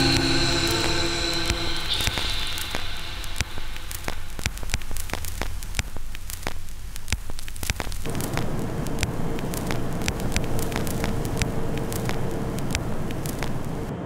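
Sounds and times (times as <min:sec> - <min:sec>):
faint steady tone: 0:00.0 - 0:07.2
thick hiss: 0:00.0 - 0:13.9
crackling static with clicks and pops: 0:00.0 - 0:14.0
low hum: 0:00.0 - 0:14.0.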